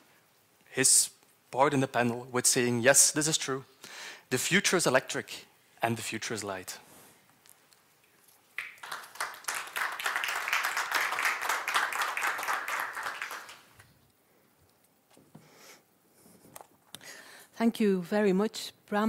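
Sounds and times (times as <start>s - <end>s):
audience applauding: 8.6s - 13.8s.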